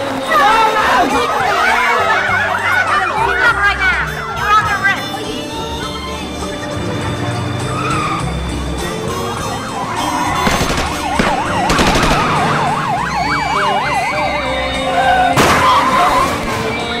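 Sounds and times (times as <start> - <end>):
siren yelping: 1.2 - 4.8, 7.7 - 16.4
sharp cracks: 10.3 - 13.0.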